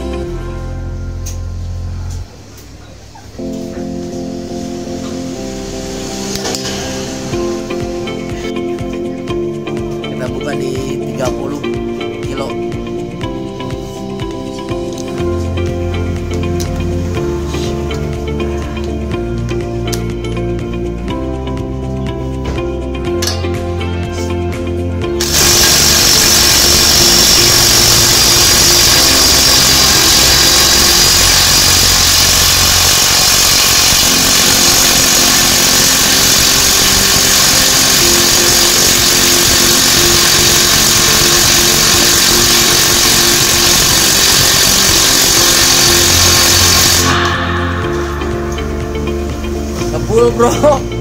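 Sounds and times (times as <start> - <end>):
impact wrench hammering: 23.2 - 23.6, 25.2 - 48.0.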